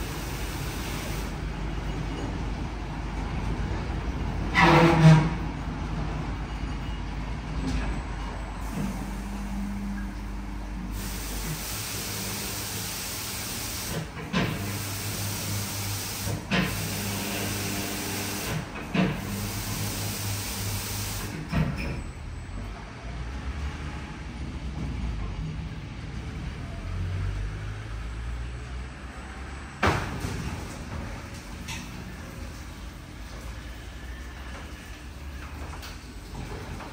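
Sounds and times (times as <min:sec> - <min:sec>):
spray nozzles hissing: 0:00.0 - 0:01.3, 0:10.9 - 0:14.0.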